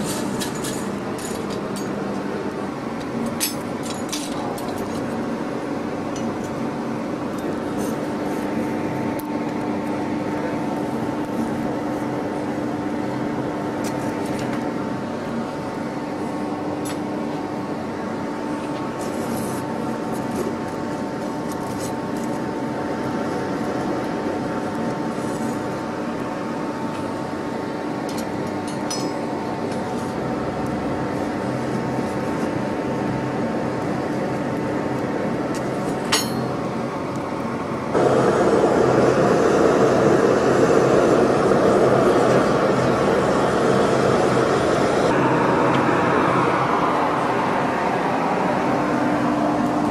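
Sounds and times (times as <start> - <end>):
electric air blower humming: 37.9 - 49.9.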